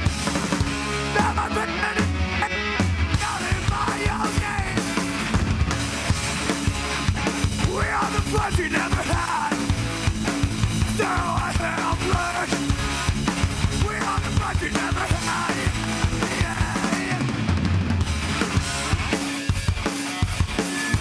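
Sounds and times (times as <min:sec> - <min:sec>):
electric guitars and bass: 0:00.0 - 0:21.0
pounding drum kit: 0:00.0 - 0:21.0
shouted vocals: 0:01.1 - 0:04.9, 0:07.6 - 0:09.7, 0:10.8 - 0:12.6, 0:13.7 - 0:17.3.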